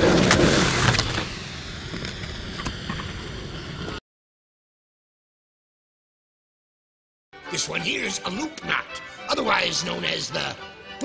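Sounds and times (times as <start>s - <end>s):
skateboard wheels rolling on concrete: 0.0s - 4.0s.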